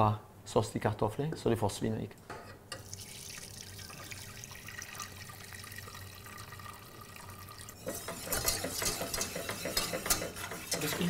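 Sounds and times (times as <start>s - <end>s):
faint liquid sounds in pot: 2.5s - 11.0s
metal utensil stirring in pot: 7.8s - 11.0s.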